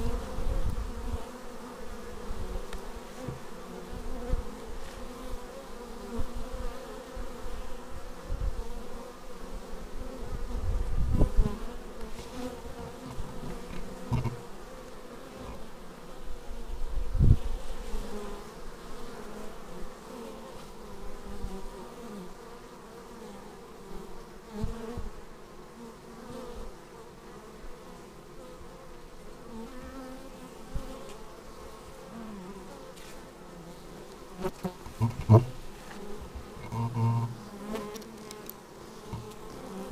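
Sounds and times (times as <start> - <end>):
honeybees buzzing: 0.0 - 39.9
low thumps: 34.9 - 37.4.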